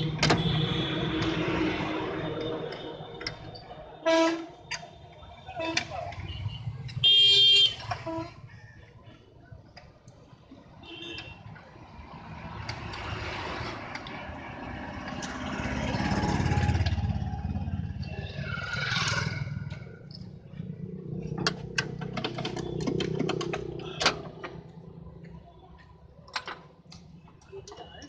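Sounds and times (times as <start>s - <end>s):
motor vehicle engine: 12.0s - 27.4s.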